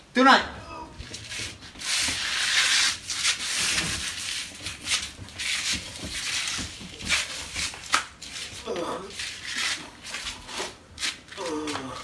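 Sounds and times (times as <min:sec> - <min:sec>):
cardboard rubbing and scraping: 0:01.1 - 0:10.8.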